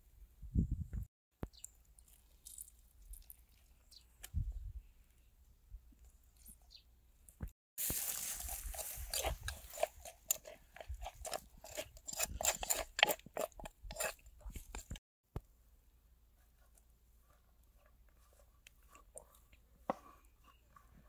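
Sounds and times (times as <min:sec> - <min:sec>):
person chewing crisp food: 0:01.8 - 0:04.0, 0:07.8 - 0:15.0, 0:17.7 - 0:20.4.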